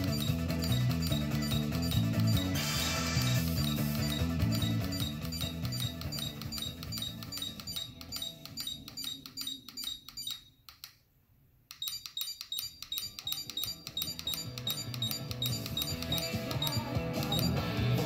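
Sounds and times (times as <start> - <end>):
music with ticking beat: 0.0 - 10.5, 11.7 - 18.0.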